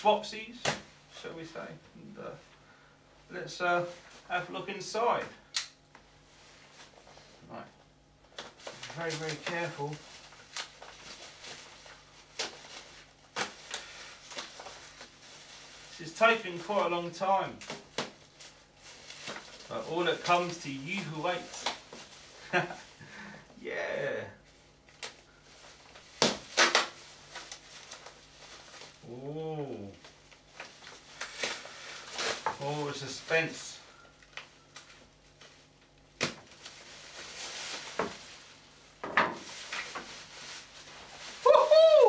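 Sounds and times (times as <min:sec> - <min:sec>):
plastic rustling: 0:08.2 - 0:23.5, 0:24.4 - 0:42.0
man humming: 0:29.0 - 0:30.0.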